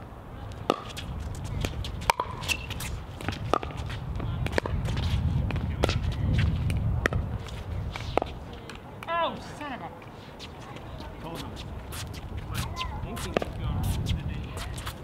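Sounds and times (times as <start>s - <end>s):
shoes shuffling on court: 0.5s - 8.8s, 9.9s - 15.0s
ball bouncing on hard court: 0.6s - 7.3s.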